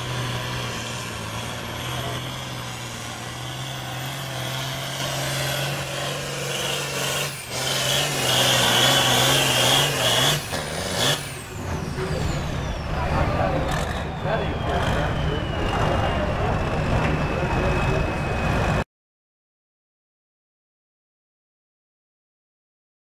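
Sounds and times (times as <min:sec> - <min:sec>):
tractor diesel engine at full throttle: 0:00.0 - 0:18.8
high whine: 0:11.6 - 0:18.8.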